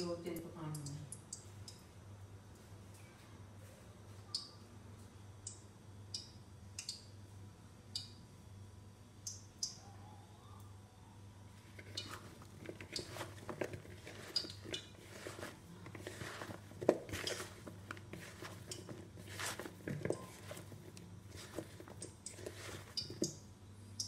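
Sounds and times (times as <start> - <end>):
low steady hum: 0.0 - 24.0
potato strips squishing in bowl: 11.6 - 23.4.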